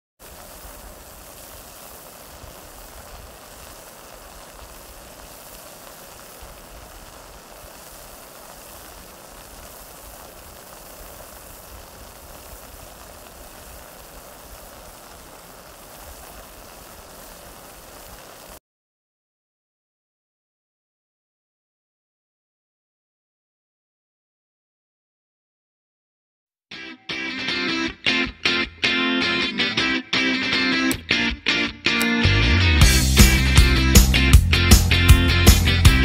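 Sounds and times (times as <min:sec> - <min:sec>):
meat sizzling in a pan: 0:00.2 - 0:18.6.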